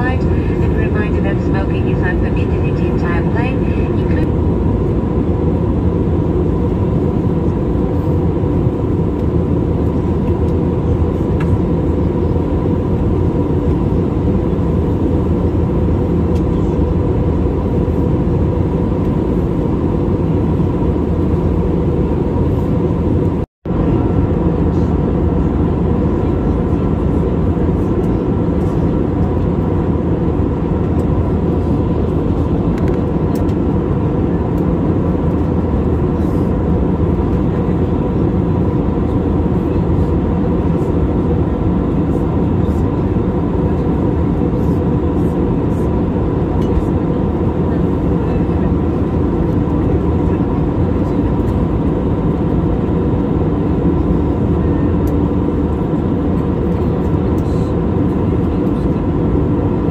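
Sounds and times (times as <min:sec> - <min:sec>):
faint steady whine: 0:00.0 - 0:21.8
airplane cabin airflow and engine noise: 0:00.0 - 0:59.9.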